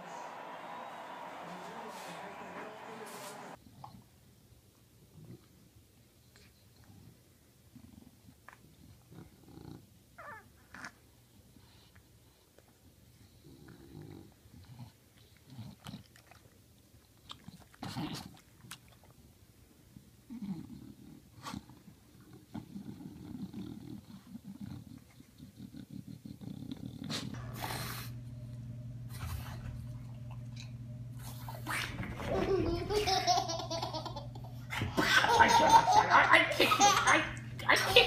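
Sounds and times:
low hum with hiss: 0.0 - 38.0
dog sniffing and snuffling: 20.5 - 28.2.

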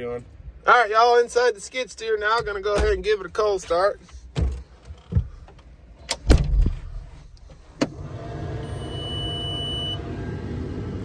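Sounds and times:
knocks and thumps in a cab: 4.2 - 8.0
diesel engine starting and running: 6.9 - 11.0
steady high beep: 8.7 - 10.0.

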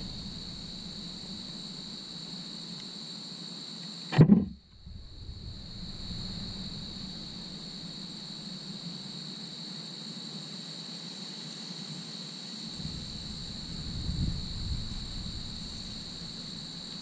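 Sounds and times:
low steady hum: 0.0 - 2.8, 4.1 - 9.2, 12.8 - 17.0
crickets chirring: 0.0 - 17.0.

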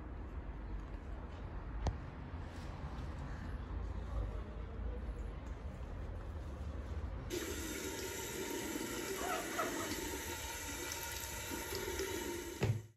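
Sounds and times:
faint low outdoor rumble: 0.0 - 7.3
tap water running into sink: 7.3 - 12.9.

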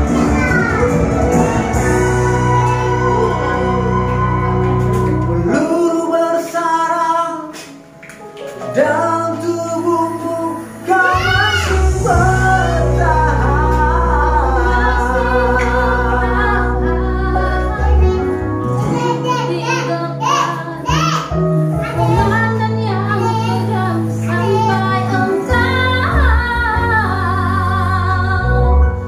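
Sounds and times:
music backing track: 0.0 - 29.0
woman and man singing duet: 1.4 - 7.7, 8.7 - 18.1, 22.0 - 29.0.

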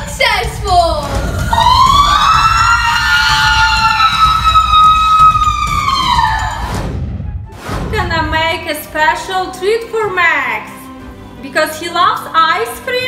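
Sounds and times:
woman screaming: 1.2 - 6.7.

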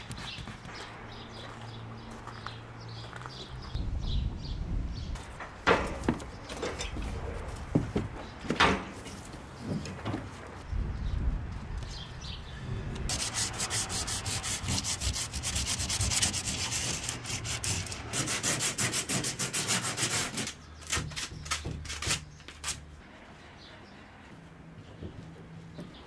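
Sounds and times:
hand scrubbing canoe hull: 13.1 - 20.6.

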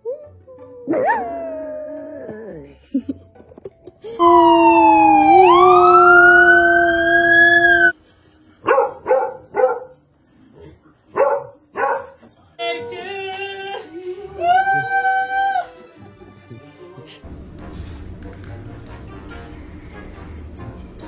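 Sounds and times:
dog howling: 4.2 - 7.9
siren-like wail: 4.2 - 8.0
dog barking: 8.6 - 9.9, 11.1 - 12.2.

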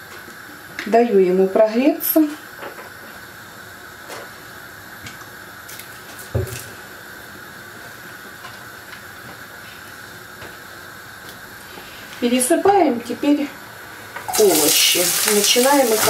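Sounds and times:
gas stove burner hiss: 13.9 - 16.0.

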